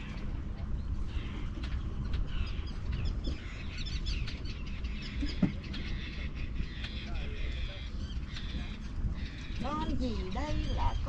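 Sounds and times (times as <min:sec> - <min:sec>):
birds chirping: 0:00.0 - 0:11.0
steady low rumble: 0:00.0 - 0:11.0.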